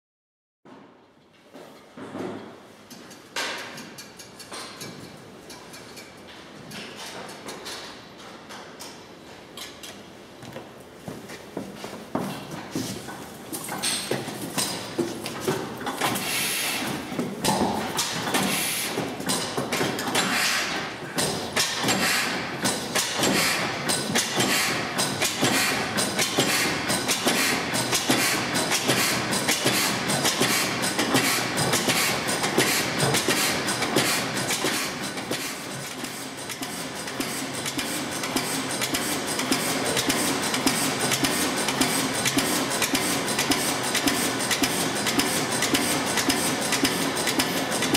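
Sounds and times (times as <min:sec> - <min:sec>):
old stationary engine clattering: 0:13.7 - 0:47.9.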